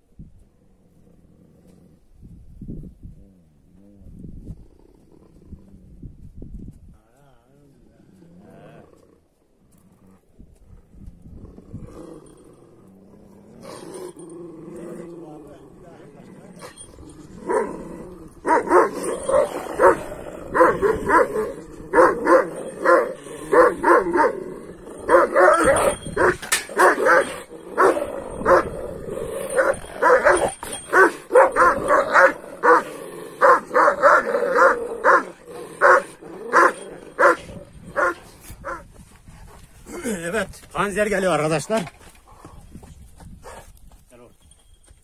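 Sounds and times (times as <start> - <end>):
dogs barking: 18.4 - 24.4, 25.0 - 28.8, 29.6 - 38.8.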